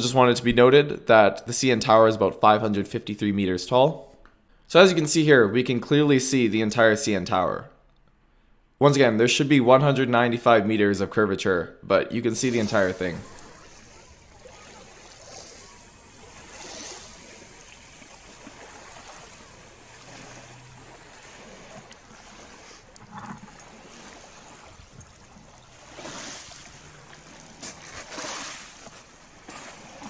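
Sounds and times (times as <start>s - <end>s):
lake waves washing onto pebbles: 12.2s - 30.0s.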